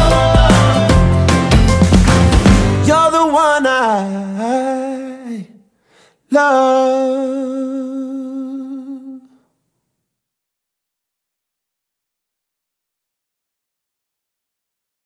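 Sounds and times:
person singing long notes: 0:00.0 - 0:01.4, 0:06.3 - 0:09.4.

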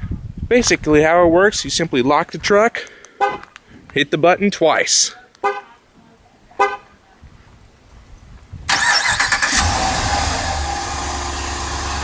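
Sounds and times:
starter cranking: 0:08.7 - 0:10.8
engine idling: 0:08.7 - 0:12.0.

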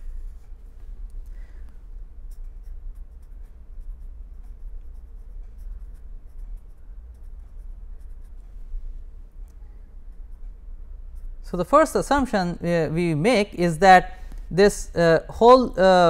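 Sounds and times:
steady low hum: 0:00.0 - 0:16.0
pen writing on paper: 0:02.3 - 0:08.4.

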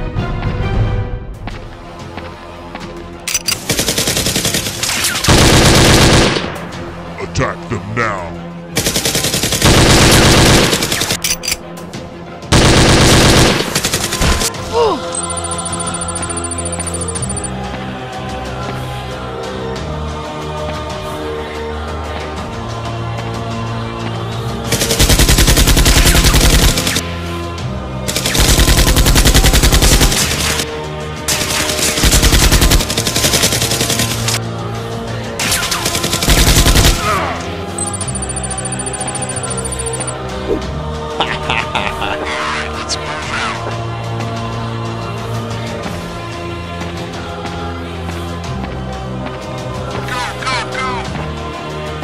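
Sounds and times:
background music: 0:00.0 - 0:52.0
automatic gunfire: 0:03.6 - 0:06.5, 0:08.8 - 0:11.2, 0:12.6 - 0:14.5, 0:24.8 - 0:27.0, 0:28.1 - 0:30.6, 0:31.3 - 0:34.4, 0:35.5 - 0:37.2.

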